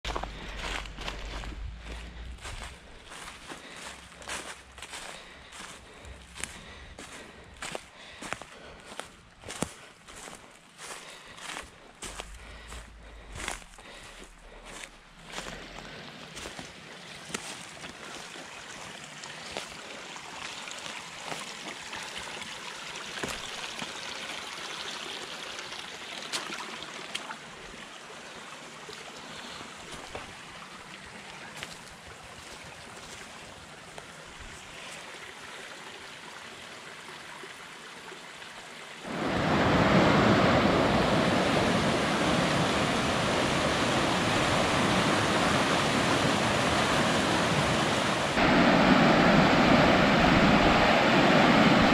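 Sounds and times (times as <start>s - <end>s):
river rushing: 39.0s - 51.9s
whitewater rapids rushing: 39.0s - 51.9s.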